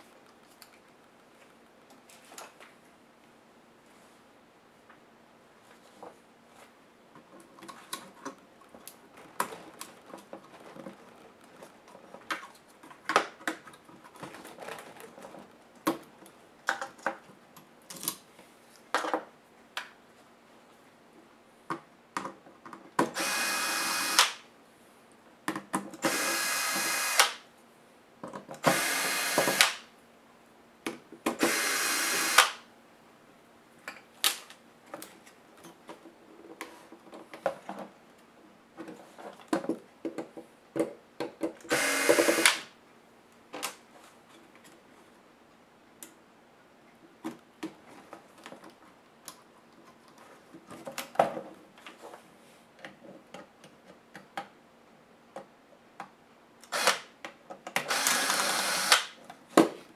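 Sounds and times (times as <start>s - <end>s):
cordless electric screwdriver running: 23.2s - 24.4s, 26.0s - 27.4s, 28.7s - 29.8s, 31.4s - 32.6s, 41.7s - 42.6s, 56.7s - 57.0s, 57.9s - 59.1s.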